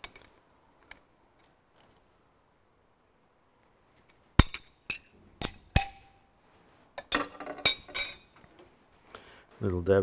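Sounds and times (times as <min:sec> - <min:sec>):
spanners clinking on metal: 0:07.0 - 0:08.4.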